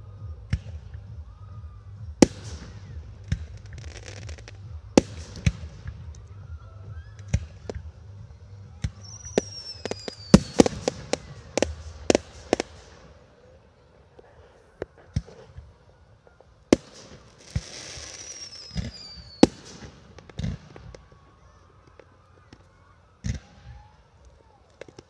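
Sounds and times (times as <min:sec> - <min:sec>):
firework bangs: 0:00.3 - 0:13.6, 0:16.6 - 0:22.1
falling firework whistle: 0:08.8 - 0:13.0, 0:16.8 - 0:24.1.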